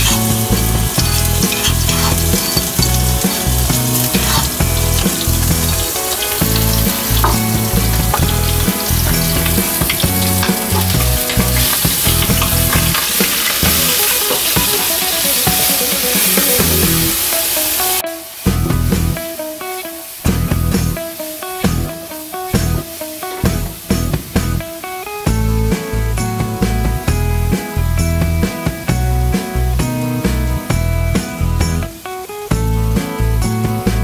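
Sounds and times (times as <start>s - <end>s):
spice paste sizzling in oil: 0.0s - 18.0s.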